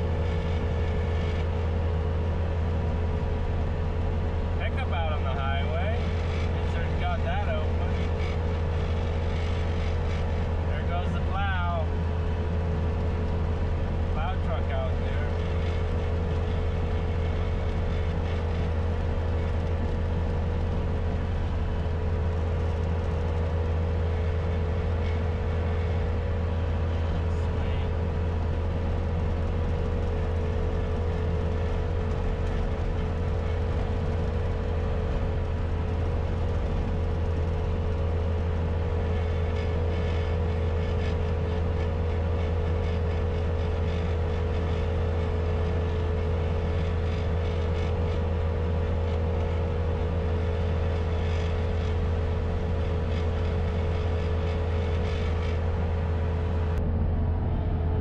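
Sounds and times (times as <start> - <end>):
diesel engine droning with whine: 0.0 - 58.0.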